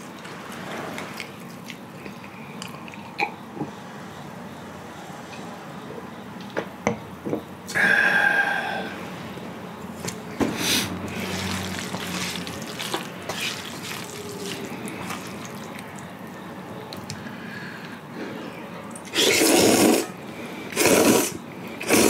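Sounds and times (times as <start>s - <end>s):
chopsticks stirring noodles in pan: 11.1s - 16.1s
person drinking cola: 19.1s - 20.1s, 20.7s - 22.0s.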